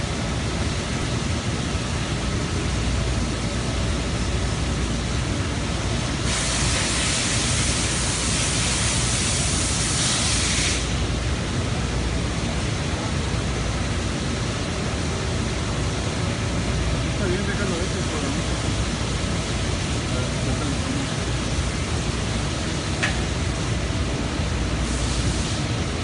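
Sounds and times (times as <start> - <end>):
bright loud hiss: 6.1 - 11.3, 24.7 - 26.0.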